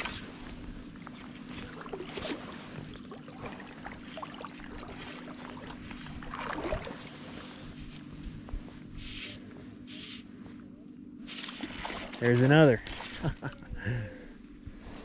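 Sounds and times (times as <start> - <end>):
river water running and lapping: 0.0 - 8.8, 11.3 - 13.7
steady low hum: 0.0 - 15.0
splashy rustle: 1.5 - 7.4, 11.3 - 13.4.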